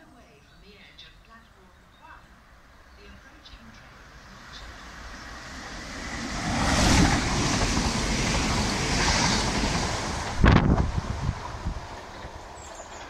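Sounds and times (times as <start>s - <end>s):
train rushing past: 2.4s - 13.0s
wind buffeting microphone: 4.8s - 13.0s.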